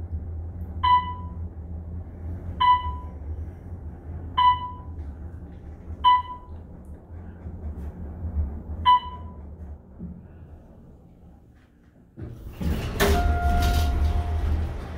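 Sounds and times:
elevator low hum: 0.0 - 14.9
elevator chime dinging: 0.8 - 1.4, 2.6 - 3.2, 4.4 - 5.0, 6.0 - 6.5, 8.9 - 9.4, 12.9 - 14.9.

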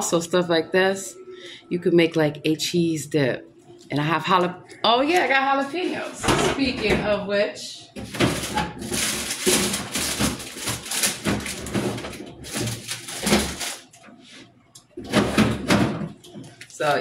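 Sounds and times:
plastic bags crinkling: 8.0 - 14.0.

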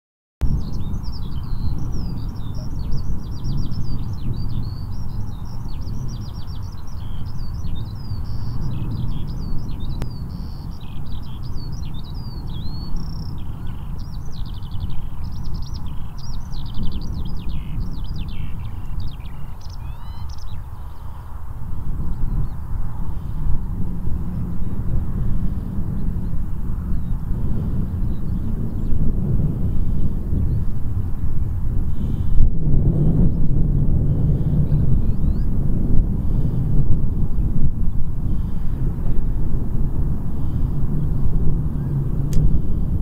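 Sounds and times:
songbird chirps and trills: 0.4 - 21.4
low rumble: 0.4 - 43.0.

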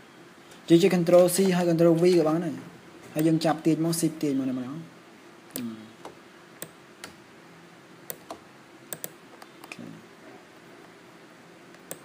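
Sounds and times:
keyboard and mouse clicks: 8.1 - 9.8, 11.7 - 12.0.

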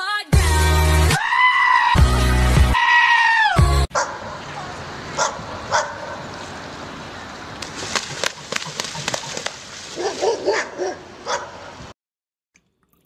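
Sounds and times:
dog yipping: 3.9 - 4.2, 5.2 - 6.2, 10.0 - 11.7
sharp slaps or splashes: 7.6 - 10.4.

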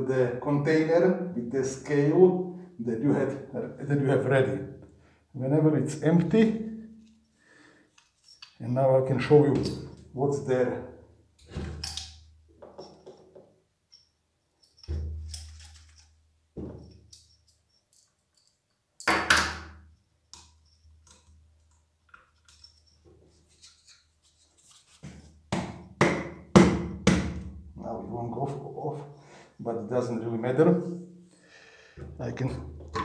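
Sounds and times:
light metallic clinks: 11.8 - 19.4, 20.3 - 23.1
knocks and thuds on wood: 25.5 - 27.5.

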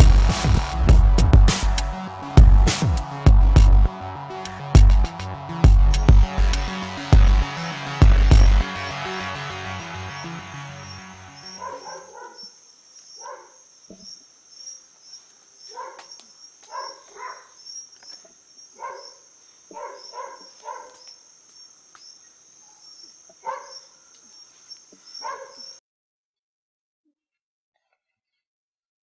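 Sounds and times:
night insects chirping: 10.2 - 25.8
dog barking: 11.4 - 12.5, 13.2 - 13.6, 15.7 - 17.6, 18.8 - 21.1, 23.4 - 23.9, 25.2 - 25.7.

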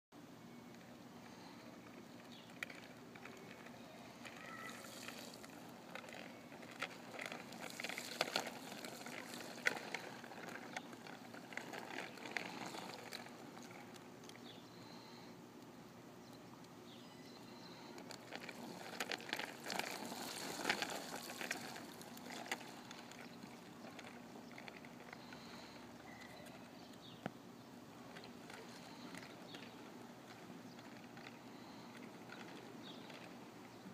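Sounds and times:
bicycle rattling: 1.2 - 15.1, 16.9 - 27.2, 28.0 - 33.9
bicycle tyres splashing in puddles: 4.4 - 13.8, 18.1 - 24.4.

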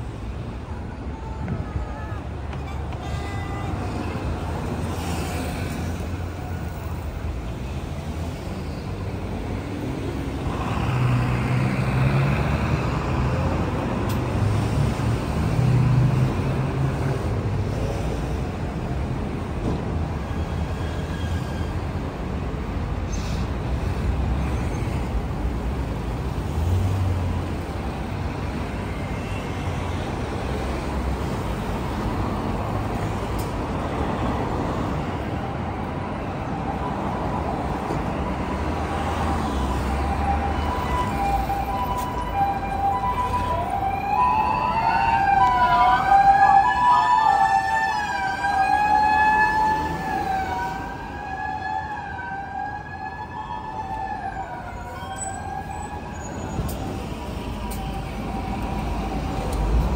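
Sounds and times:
rumble of passing cars: 0.0 - 59.9
loud vehicle passing: 9.5 - 17.0.

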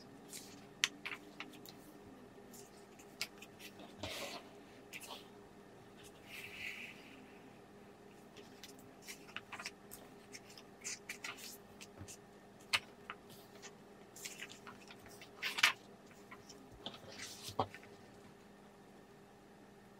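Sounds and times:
paper pages rustling: 8.3 - 18.2.

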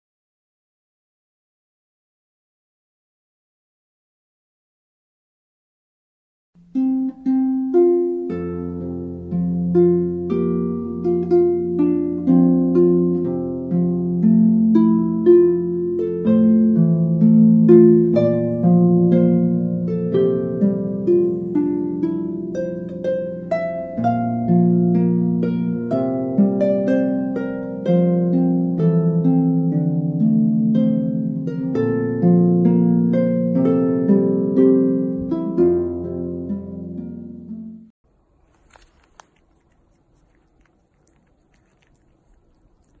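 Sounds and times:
slow plucked melody: 6.6 - 37.9.

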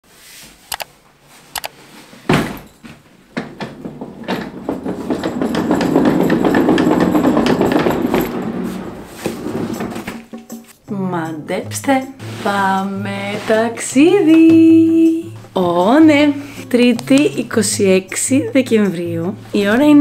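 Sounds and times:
suitcase rolling on wooden floor: 2.2 - 10.7, 12.2 - 20.0
sharp knocks: 9.2 - 10.8.

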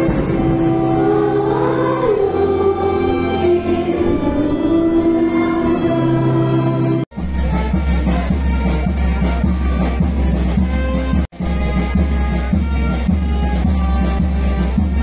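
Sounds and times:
congregation singing a hymn: 0.0 - 7.0.

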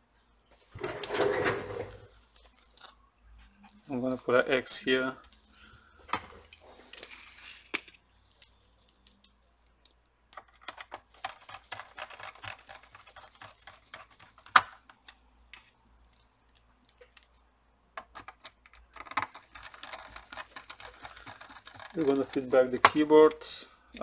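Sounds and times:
light clicks and scratches: 18.1 - 23.4.

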